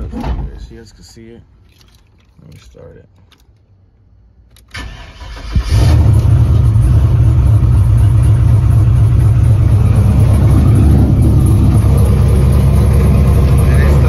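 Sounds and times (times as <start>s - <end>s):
starter cranking engine: 4.7s - 6.7s
truck engine running: 5.7s - 14.0s.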